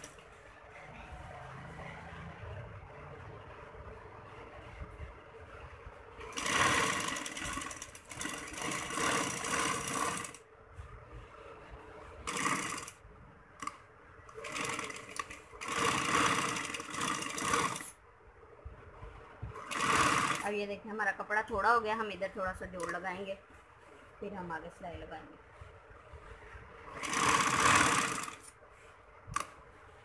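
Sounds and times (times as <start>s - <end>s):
sewing machine stitching: 6.2s - 10.4s, 12.2s - 13.0s, 14.3s - 18.0s, 19.6s - 20.6s, 26.9s - 28.5s.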